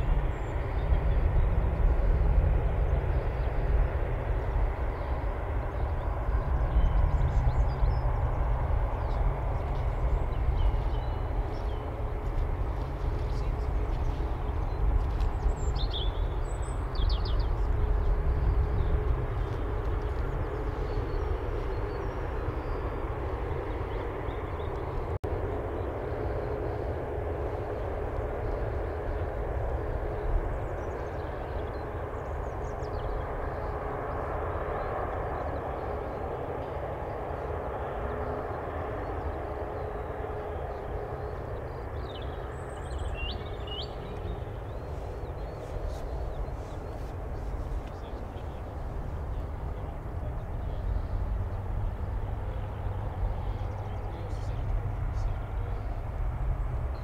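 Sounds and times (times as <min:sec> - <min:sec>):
distant jet engine whine: 0:00.0 - 0:57.0.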